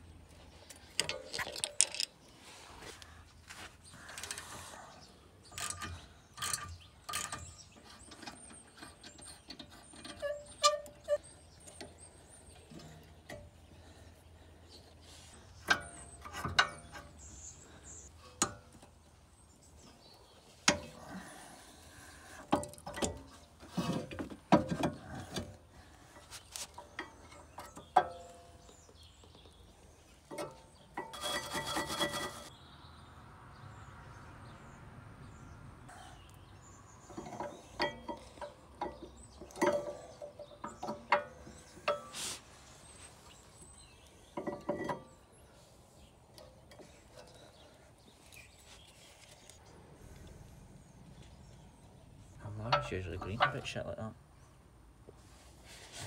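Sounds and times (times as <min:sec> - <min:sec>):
metallic clinks and knocks: 0:00.9 - 0:02.2.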